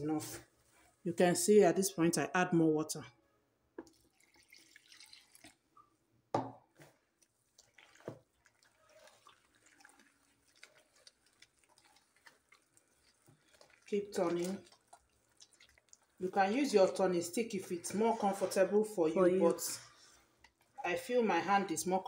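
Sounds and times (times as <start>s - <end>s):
hand kneading wet batter: 6.7s - 22.0s.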